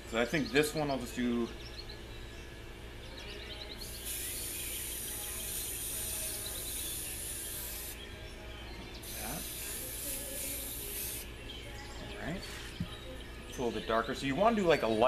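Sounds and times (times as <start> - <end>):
spray paint can hissing: 3.8 - 8.0, 9.0 - 11.3.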